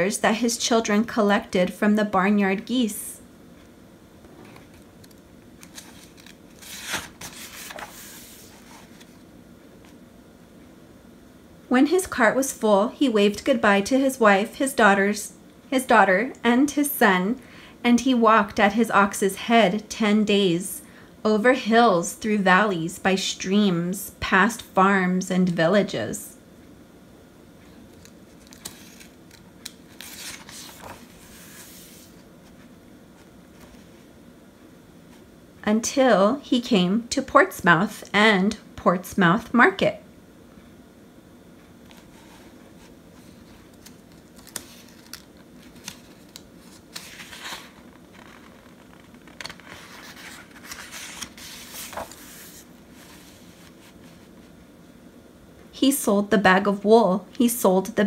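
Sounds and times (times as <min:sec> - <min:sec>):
paper page turning: 0:05.6 - 0:09.2, 0:27.9 - 0:32.6, 0:43.2 - 0:54.4.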